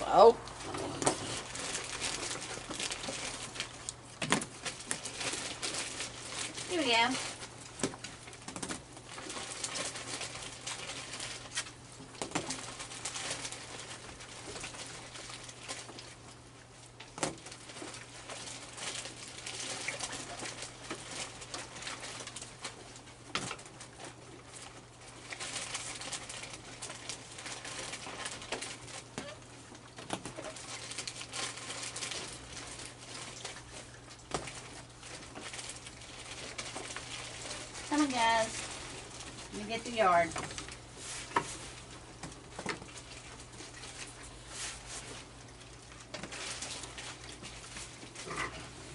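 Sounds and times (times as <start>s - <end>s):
raccoons crunching kibble: 0.0s - 48.9s.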